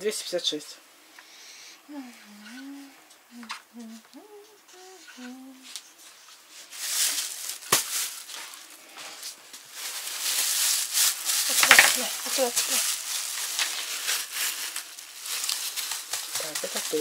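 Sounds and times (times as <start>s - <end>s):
person humming: 1.8s - 5.8s
plastic bags rustling: 5.6s - 17.0s.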